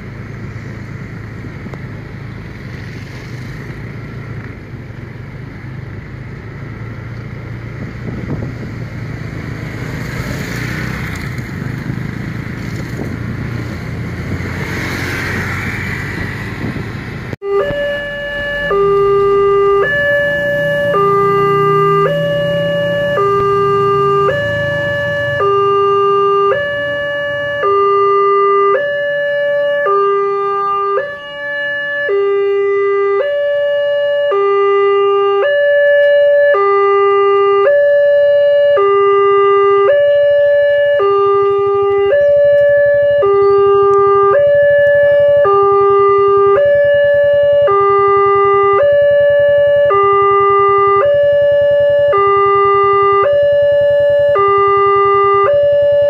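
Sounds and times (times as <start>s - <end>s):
two-tone crossing alarm: 17.4s - 56.0s.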